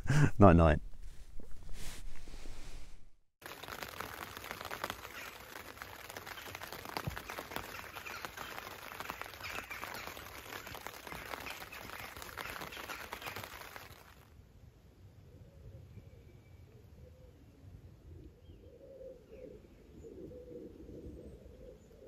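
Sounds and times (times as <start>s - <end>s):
dense crackle of small ticks: 3.4s - 14.3s
birds chirping: 4.6s - 13.9s.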